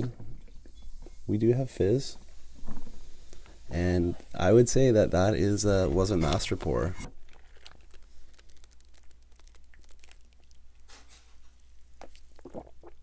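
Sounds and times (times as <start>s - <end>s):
soda fizzing in a glass: 0.5s - 3.8s
sips and swallows: 11.6s - 13.0s.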